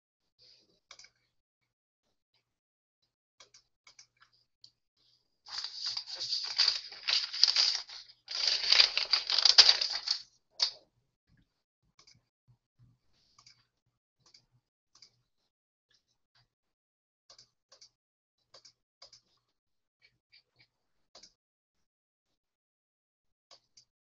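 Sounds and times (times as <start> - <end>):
rustling close to microphone: 5.5 - 10.2.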